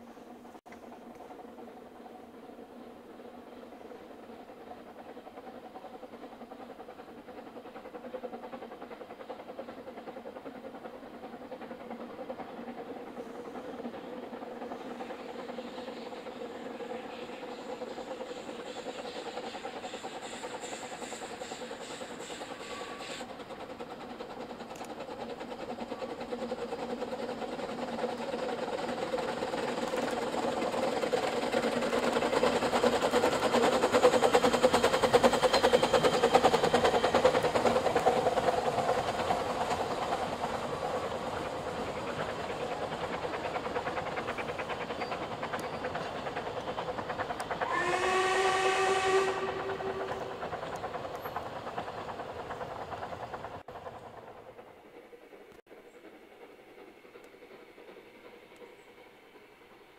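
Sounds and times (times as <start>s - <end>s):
steam locomotive working: 0.0s - 59.9s
train wheels running on rails: 0.0s - 59.9s
steam locomotive whistle: 22.4s - 23.2s, 47.6s - 50.5s.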